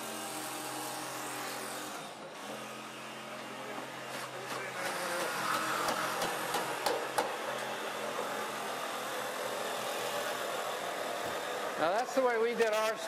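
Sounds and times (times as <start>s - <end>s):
workshop tools humming: 0.0s - 13.0s
knocks on wood and metal: 5.2s - 7.4s.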